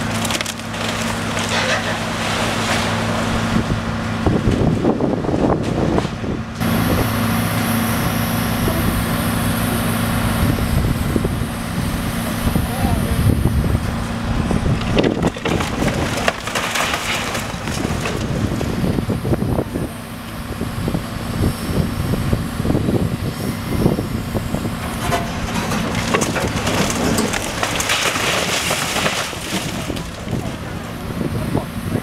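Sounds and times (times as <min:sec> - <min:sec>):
masonry crunching and clattering: 0:00.0 - 0:03.3, 0:14.4 - 0:19.7, 0:24.3 - 0:31.8
diesel engine droning: 0:00.0 - 0:32.0
bucket knocking and scraping wall: 0:24.8 - 0:30.6.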